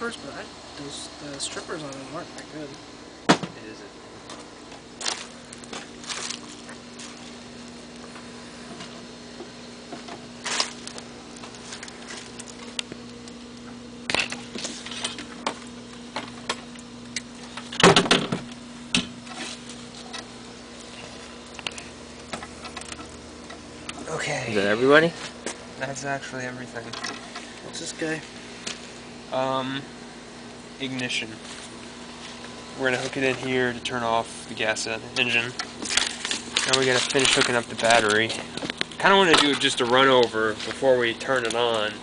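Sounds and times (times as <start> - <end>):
steady low hum: 0.0 - 42.0
clicks and rattles of wiring work: 4.2 - 25.6, 26.8 - 29.0, 34.5 - 42.0.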